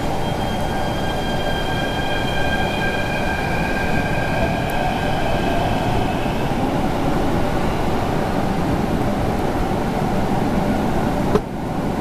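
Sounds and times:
high electric whine: 0:00.0 - 0:09.6
subway train rumbling: 0:00.0 - 0:12.0.

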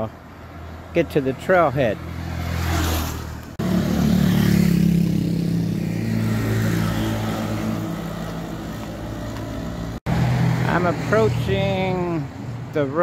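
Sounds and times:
vehicle engine passing by: 0:01.8 - 0:11.9.

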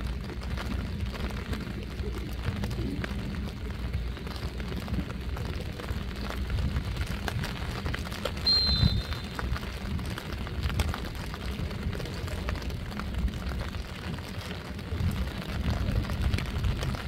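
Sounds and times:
wind rumbling on microphone: 0:00.0 - 0:17.0
referee's whistle blast: 0:08.4 - 0:09.4.

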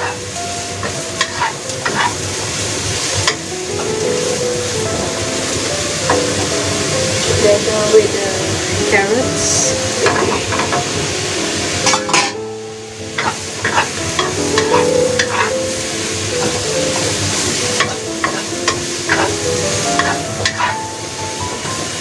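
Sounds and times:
soft background music: 0:00.0 - 0:22.0
vegetables sizzling in a wok: 0:00.0 - 0:22.0
spatula scraping a pan: 0:00.8 - 0:02.2, 0:10.0 - 0:10.9, 0:13.2 - 0:15.6, 0:16.4 - 0:19.4, 0:20.0 - 0:20.9.

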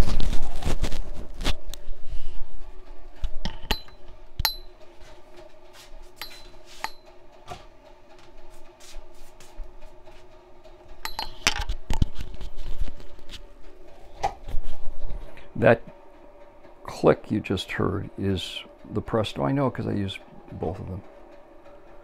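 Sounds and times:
faint steady hum: 0:00.0 - 0:22.0
metallic ticks and pings: 0:03.7 - 0:04.8, 0:06.2 - 0:07.2, 0:11.0 - 0:11.4.

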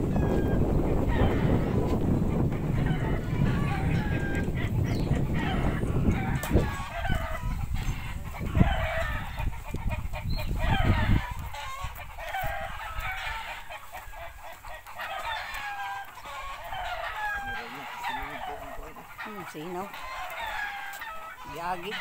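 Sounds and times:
low rumble on microphone: 0:00.0 - 0:13.5
chickens clucking: 0:00.0 - 0:22.0.

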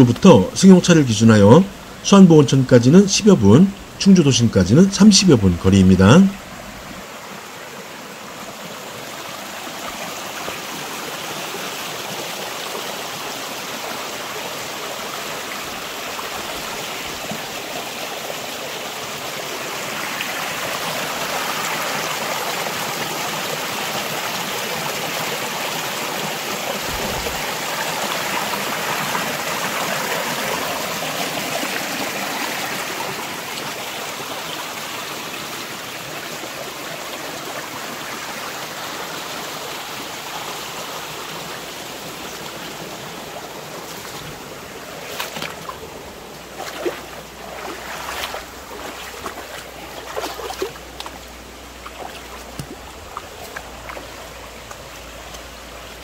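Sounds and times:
stream running over stones: 0:00.0 - 0:56.0.

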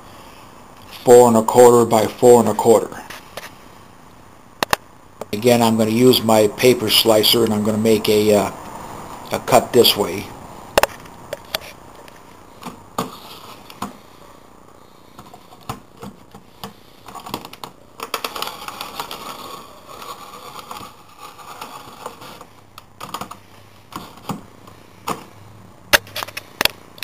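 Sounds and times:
paper trimmer blade scraping cardboard: 0:18.2 - 0:22.5.

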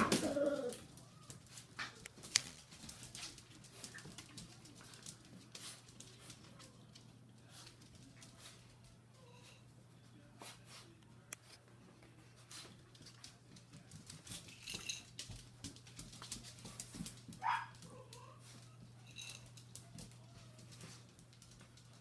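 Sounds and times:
puppy claws clicking on tile: 0:00.2 - 0:08.6, 0:12.9 - 0:18.3.

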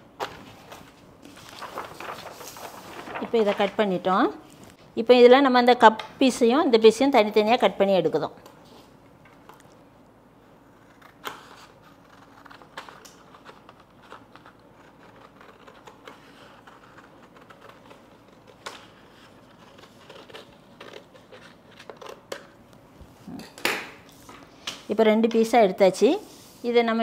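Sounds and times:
paper rustling: 0:00.2 - 0:04.8
scissors snipping paper: 0:10.9 - 0:18.8.

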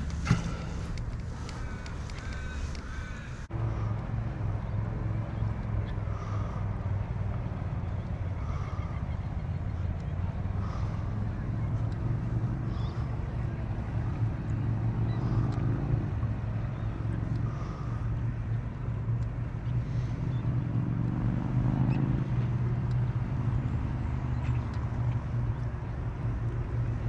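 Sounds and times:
kayak drive humming: 0:00.0 - 0:03.5.

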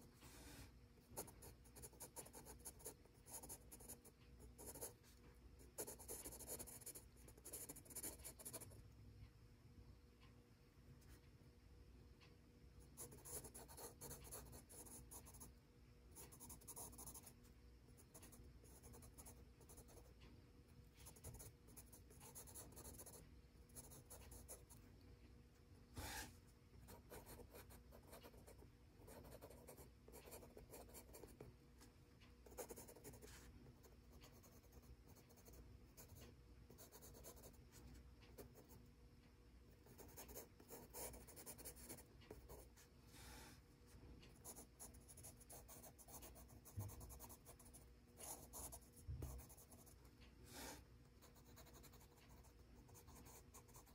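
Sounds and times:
pencil scratching on paper: 0:00.0 - 0:05.2, 0:05.8 - 0:08.7, 0:13.0 - 0:15.5, 0:16.2 - 0:17.3, 0:18.0 - 0:20.1, 0:21.0 - 0:23.2, 0:23.8 - 0:24.8, 0:26.0 - 0:31.4, 0:32.4 - 0:37.6, 0:39.8 - 0:42.8, 0:44.4 - 0:53.9.

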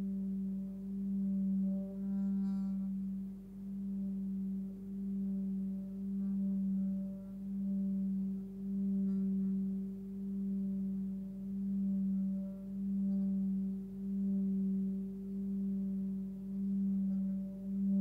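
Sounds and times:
singing bowl tone: 0:00.0 - 0:18.0.

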